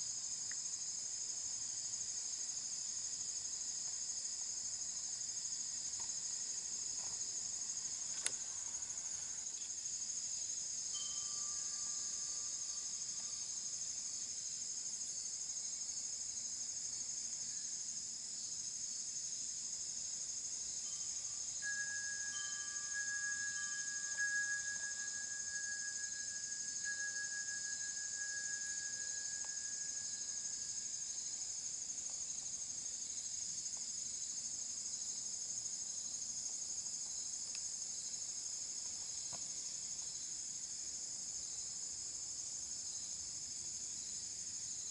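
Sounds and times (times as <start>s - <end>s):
high-pitched insect chorus: 0.0s - 44.9s
faint long steady tones: 5.9s - 15.1s, 20.4s - 33.6s.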